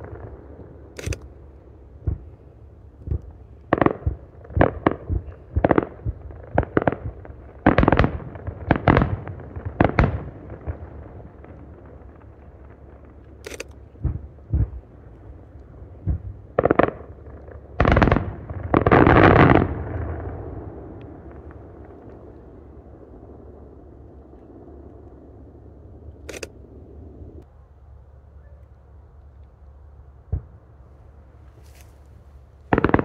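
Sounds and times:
sharp crack: 0.0s - 2.4s, 13.1s - 14.8s, 26.2s - 26.7s, 32.7s - 33.0s
rumble: 0.0s - 33.0s
firework shells bursting: 32.7s - 33.0s.

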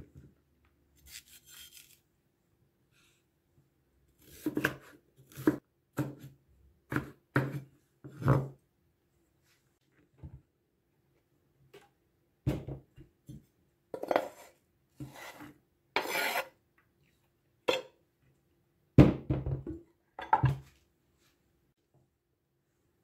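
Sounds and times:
knife scraping wooden board: 14.0s - 16.6s.

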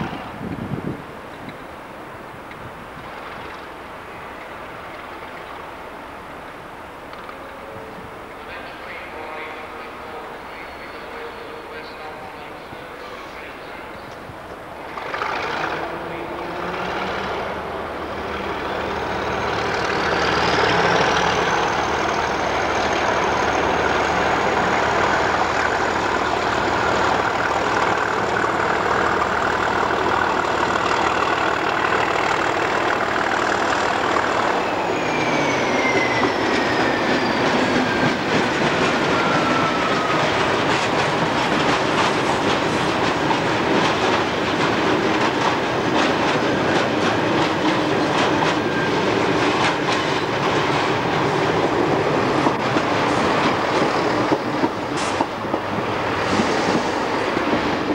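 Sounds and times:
diesel locomotive engine: 0.0s - 57.9s
high whistle: 34.6s - 38.0s.

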